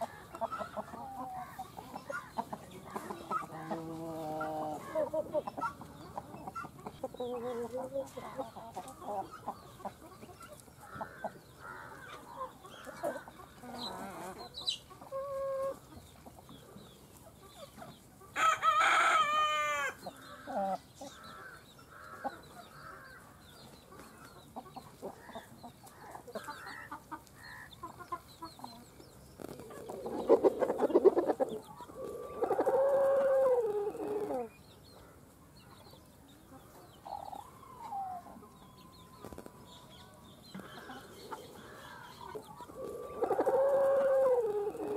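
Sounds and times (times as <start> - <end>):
chickens clucking: 0.0 - 44.9
rooster crowing: 18.4 - 20.0.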